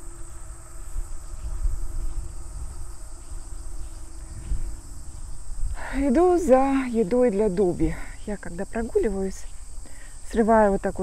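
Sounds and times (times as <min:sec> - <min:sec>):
low rumble on microphone: 0:00.0 - 0:08.3
insects chirring: 0:00.0 - 0:11.0.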